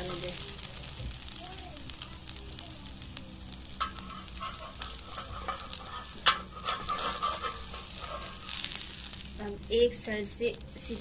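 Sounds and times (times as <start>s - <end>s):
bread sizzling in oil: 0.0s - 11.0s
metal spatula scraping a pan: 3.7s - 9.3s.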